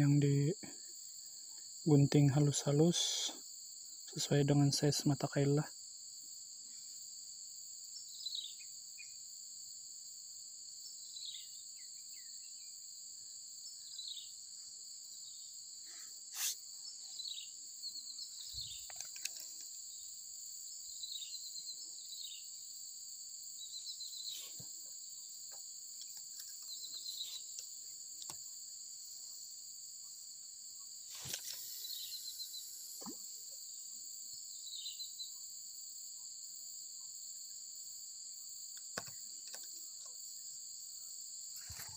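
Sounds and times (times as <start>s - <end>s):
insects droning: 0.0s - 41.9s
rustle: 23.6s - 28.6s, 31.0s - 33.2s.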